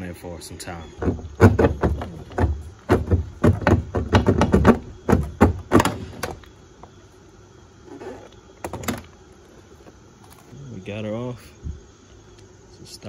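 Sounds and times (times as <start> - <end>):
plastic knocks and rattles: 1.0 - 6.4.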